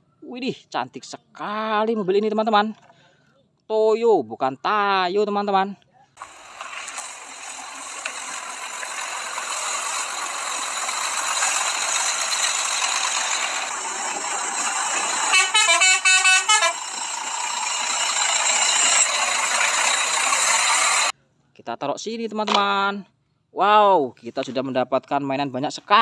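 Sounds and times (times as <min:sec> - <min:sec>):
coach horn short blasts: 0:15.3 - 0:16.9.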